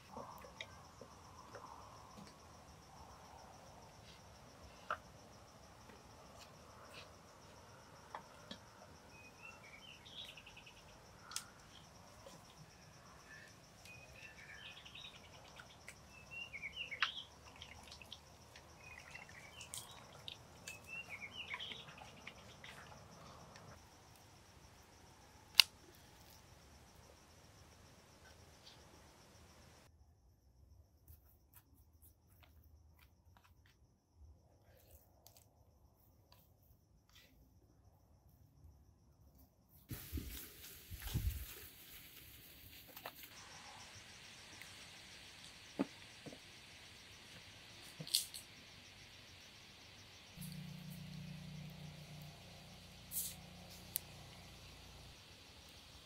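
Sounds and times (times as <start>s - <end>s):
small bird chirps: 9.1s - 11.8s, 13.2s - 18.2s, 18.8s - 23.3s.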